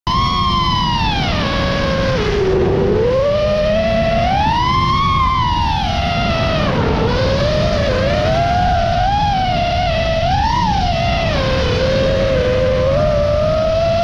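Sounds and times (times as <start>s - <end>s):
quadcopter motors whining: 0.1s - 14.0s
steady low rumble: 0.1s - 14.0s.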